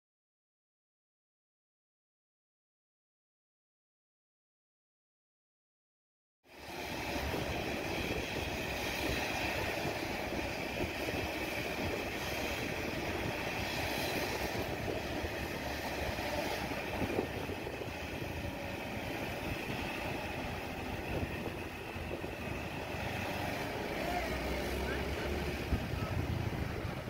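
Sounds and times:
highway traffic rumble: 0:06.5 - 0:27.0.

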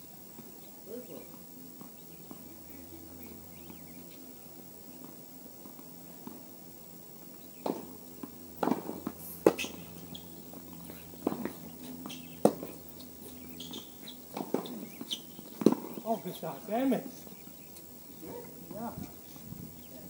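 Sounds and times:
tennis ball bouncing on court: 0:01.2 - 0:02.5, 0:04.9 - 0:06.6, 0:07.2 - 0:12.8, 0:13.6 - 0:16.2
tennis ball struck by rackets: 0:07.6 - 0:09.8, 0:11.2 - 0:12.8, 0:13.7 - 0:16.1.

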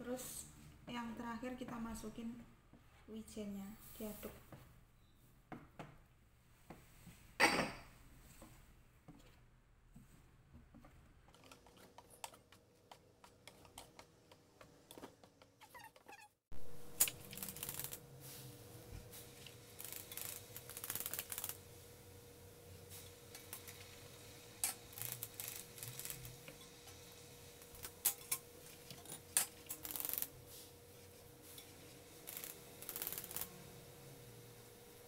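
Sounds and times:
whisk clicking against metal bowl: 0:11.3 - 0:16.0.

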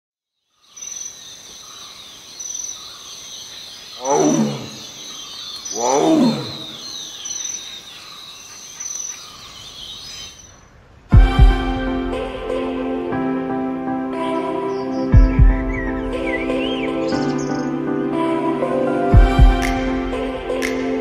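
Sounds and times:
birds chirping: 0:00.4 - 0:11.6, 0:14.2 - 0:17.9
loud animal calls falling in pitch: 0:04.0 - 0:05.0, 0:05.7 - 0:07.0.

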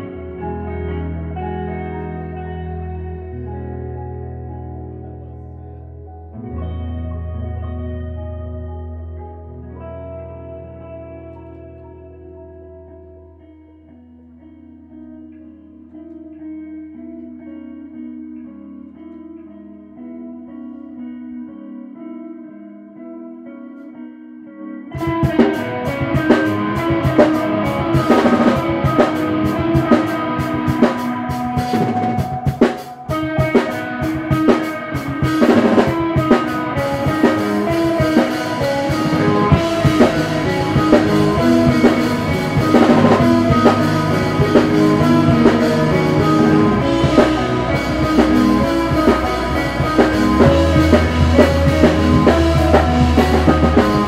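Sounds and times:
live rock band playing: 0:00.0 - 0:05.1, 0:24.9 - 0:54.0
electric guitar chords: 0:00.0 - 0:54.0
drum hits: 0:25.0 - 0:54.0.

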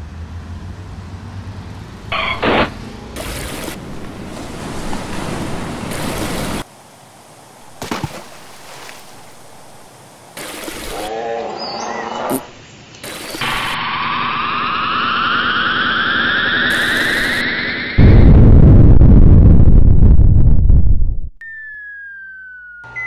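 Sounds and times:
city street traffic: 0:00.0 - 0:07.5
rushing water: 0:03.2 - 0:11.1
wavering pitched call: 0:10.9 - 0:12.5, 0:21.4 - 0:23.0.

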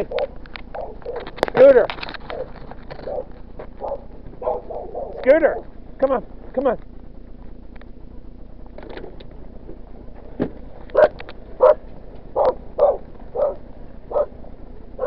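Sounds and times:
dog barking: 0:00.1 - 0:01.3, 0:02.3 - 0:05.2, 0:10.9 - 0:11.8, 0:12.4 - 0:14.4.

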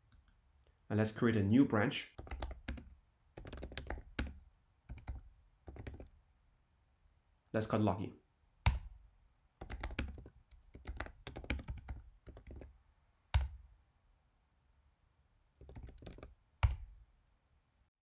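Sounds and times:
typing on computer keyboard: 0:02.2 - 0:06.1, 0:09.6 - 0:12.7, 0:15.6 - 0:16.8.

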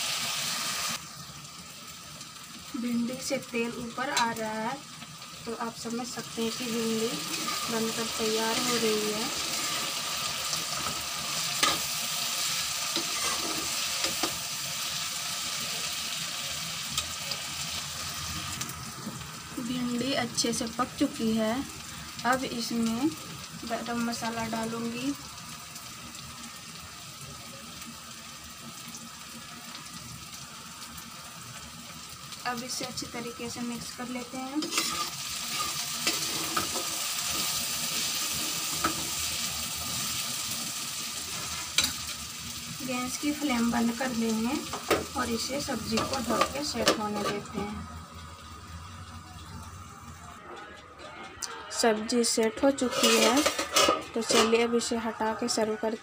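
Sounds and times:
vegetables sizzling in oil: 0:00.0 - 0:50.4, 0:51.4 - 0:56.0
spatula scraping pan: 0:07.2 - 0:11.0, 0:12.9 - 0:14.3, 0:34.6 - 0:39.1, 0:52.7 - 0:54.6.

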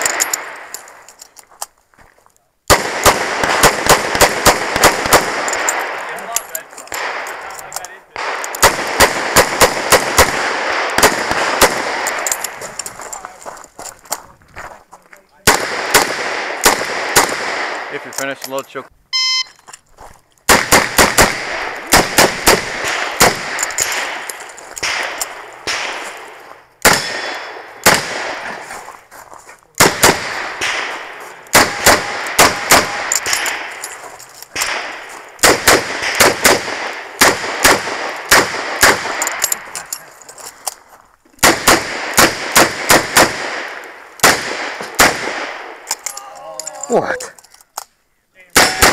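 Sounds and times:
revolver gunshots: 0:02.7 - 0:06.4, 0:07.0 - 0:12.6, 0:15.4 - 0:18.4, 0:20.5 - 0:28.6, 0:29.8 - 0:33.8, 0:34.6 - 0:39.8, 0:41.4 - 0:45.9, 0:48.6 - 0:48.9.

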